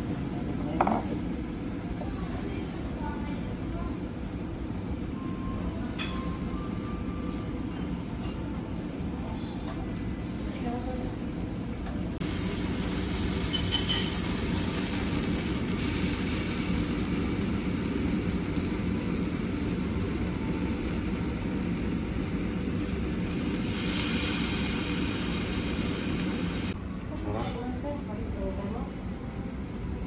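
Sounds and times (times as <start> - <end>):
hiss: 23.4 - 26.8.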